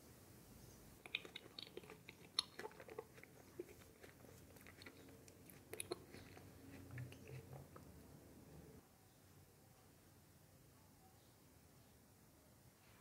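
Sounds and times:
wet mouth clicks: 0:01.0 - 0:07.9
person chewing: 0:01.0 - 0:08.0.

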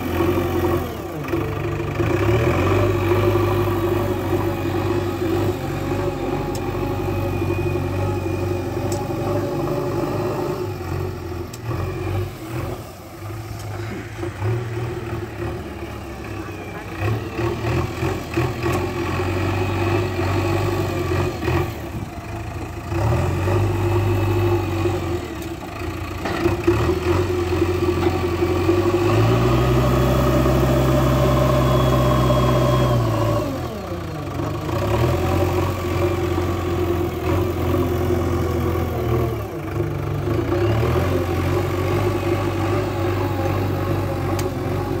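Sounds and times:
diesel engine revving: 0:00.0 - 0:45.0.

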